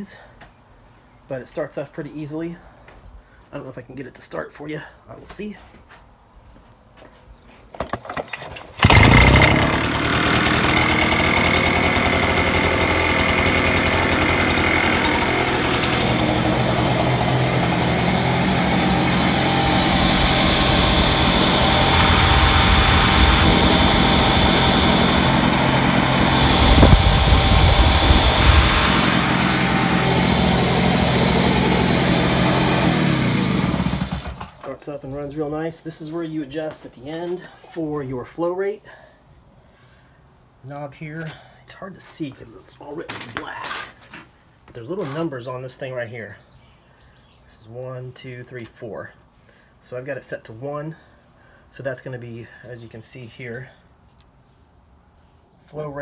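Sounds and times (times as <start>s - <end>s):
small engine running: 8.8s - 34.6s.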